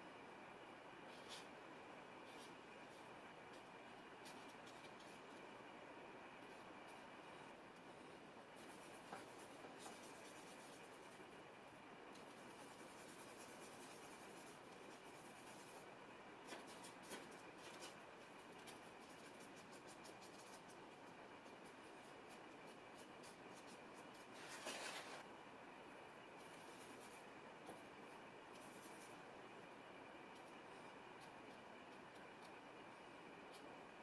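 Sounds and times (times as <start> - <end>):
brush scratching paint: 2.2 - 5.4, 7.9 - 11.4, 12.1 - 25.2, 26.4 - 27.8, 28.5 - 29.2.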